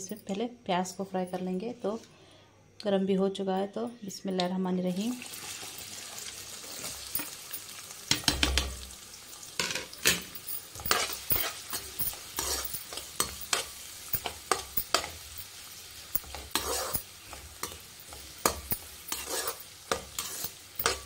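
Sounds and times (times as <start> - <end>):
onions sizzling in hot oil: 4.9 - 21.0
metal spatula scraping pan: 9.6 - 15.3, 16.1 - 21.0.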